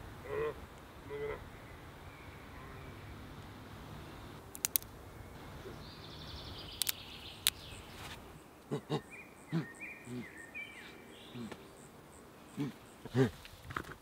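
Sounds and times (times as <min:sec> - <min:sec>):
bird calls: 0:00.3 - 0:03.4, 0:04.0 - 0:13.5
stick clicking and snapping: 0:04.5 - 0:04.9, 0:06.8 - 0:07.6
thin chirps: 0:05.7 - 0:08.1.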